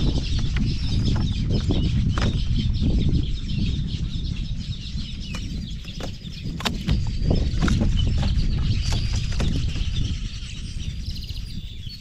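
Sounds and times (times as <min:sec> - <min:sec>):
birds chirping: 0:00.0 - 0:12.0
wind rumbling on microphone: 0:00.0 - 0:12.0
sharp clicks: 0:05.4 - 0:07.8.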